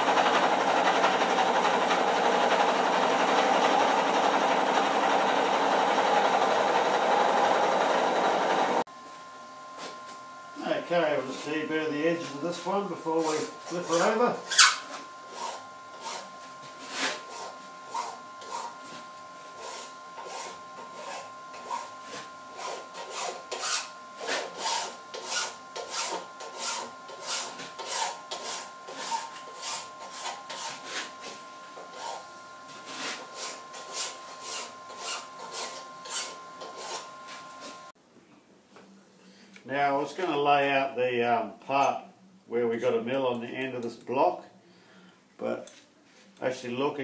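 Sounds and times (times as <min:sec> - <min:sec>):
hand file rasping on metal: 0:22.6 - 0:31.1.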